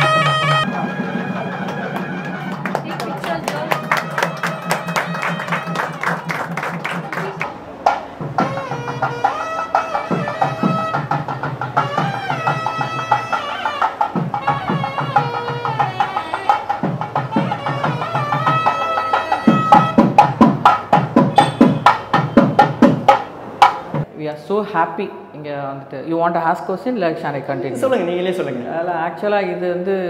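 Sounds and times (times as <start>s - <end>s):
reed wind instrument melody: 0.0s - 7.5s, 8.2s - 23.5s
hand drum strokes: 0.0s - 24.1s.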